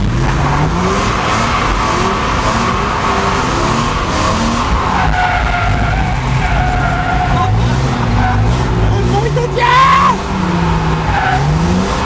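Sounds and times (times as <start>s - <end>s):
car engines under throttle: 0.0s - 12.0s
tyres squealing: 4.4s - 12.0s.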